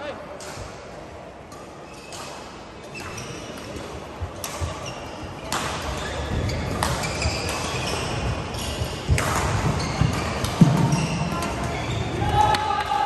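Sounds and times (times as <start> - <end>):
shoes squeaking on court: 1.8 - 12.2
racket striking shuttlecock: 4.4 - 4.9, 5.5 - 8.1, 9.1 - 11.6.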